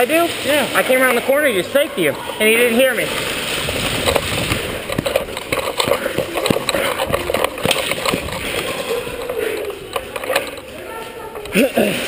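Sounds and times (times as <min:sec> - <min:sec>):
rustling of movement: 0:02.1 - 0:11.5
hurried footsteps on concrete: 0:03.5 - 0:10.6
gear clattering: 0:03.9 - 0:10.7.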